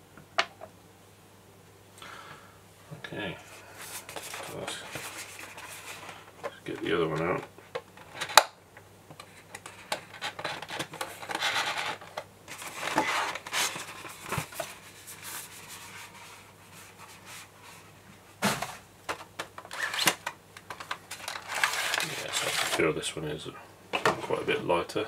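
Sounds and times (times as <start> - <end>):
plastic packaging rustling: 3.8 - 7.4, 9.2 - 17.5, 18.5 - 22.9.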